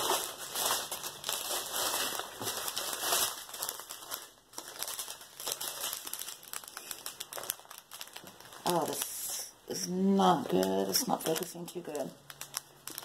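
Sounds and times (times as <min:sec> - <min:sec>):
plastic packets crinkling: 0:00.0 - 0:13.0.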